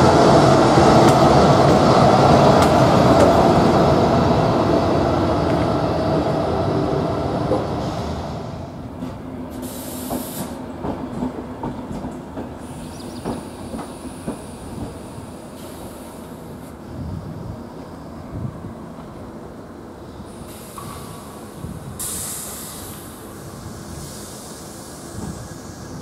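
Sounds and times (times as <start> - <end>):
electric locomotive hum: 0.0 - 26.0
train wheels clicking over rail joints: 8.9 - 16.4
high hiss: 9.5 - 10.6, 20.3 - 26.0.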